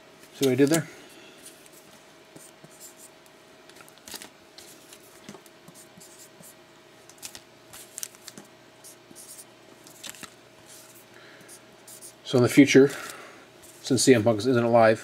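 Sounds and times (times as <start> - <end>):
foil wrappers crinkling: 4.0 - 4.3, 7.2 - 8.4.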